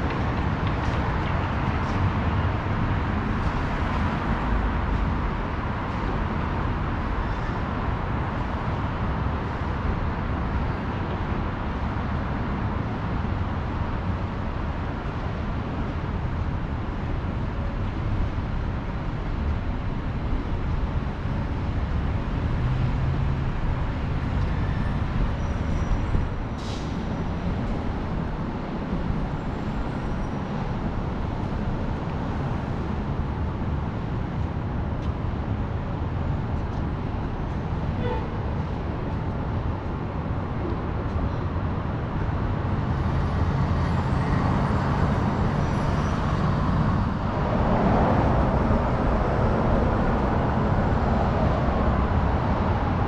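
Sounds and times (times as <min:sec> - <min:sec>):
passing cars rumbling: 0:00.0 - 0:53.0.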